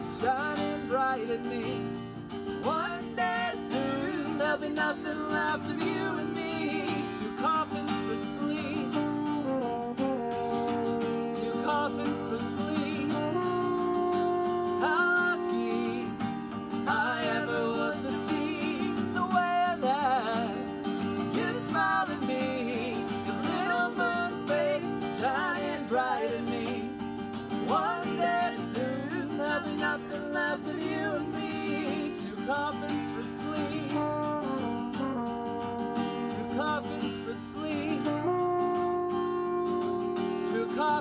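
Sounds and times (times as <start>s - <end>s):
wavering wordless melody: 0.0s - 40.0s
acoustic guitar strumming: 0.0s - 41.0s
french horn: 9.3s - 11.7s, 38.0s - 41.0s.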